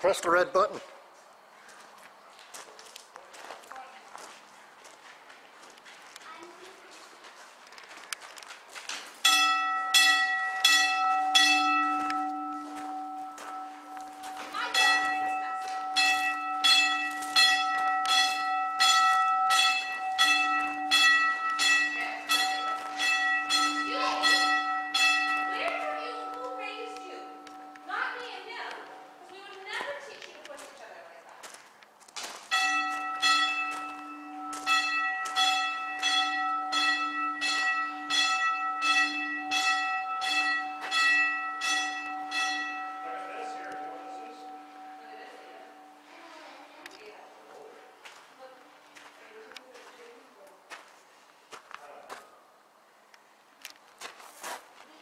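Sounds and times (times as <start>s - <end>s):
bell ringing: 9.2s - 29.3s, 32.5s - 46.3s.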